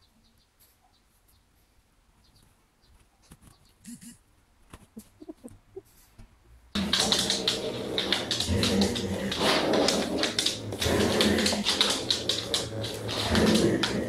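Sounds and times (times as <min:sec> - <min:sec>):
clicking and scuffling: 0:06.1 - 0:14.0
dog growling: 0:06.8 - 0:14.0.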